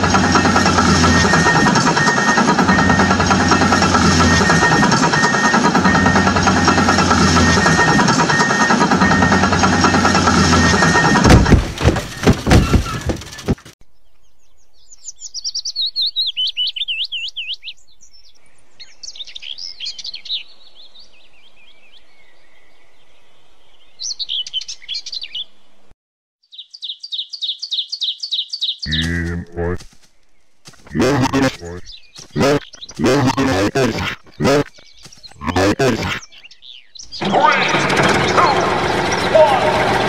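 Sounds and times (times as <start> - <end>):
loud rattling with knocks: 0.0 - 13.8, 37.1 - 40.0
bird warbling song: 12.1 - 25.7, 26.4 - 39.9.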